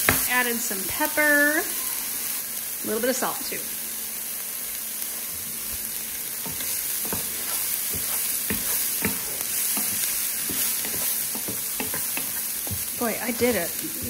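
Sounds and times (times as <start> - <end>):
onions sizzling in frying pan: 0.0 - 14.0
wooden spoon scraping a pan: 6.2 - 14.0.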